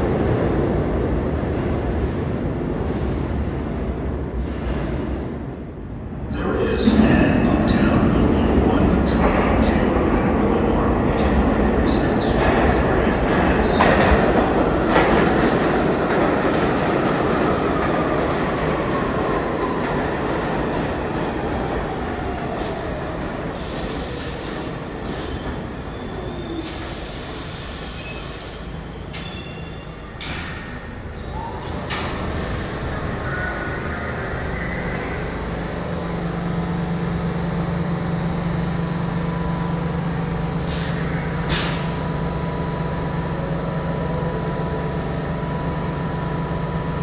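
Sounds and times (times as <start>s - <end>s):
subway train wheels rumbling: 0.0s - 47.0s
train brakes squealing: 23.6s - 31.8s.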